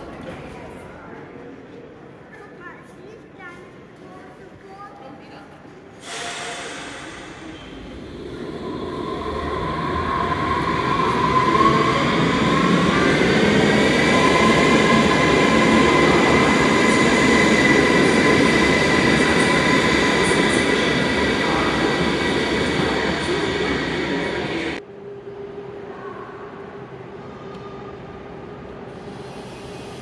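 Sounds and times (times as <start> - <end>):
train wheels rumbling: 6.0 - 24.8.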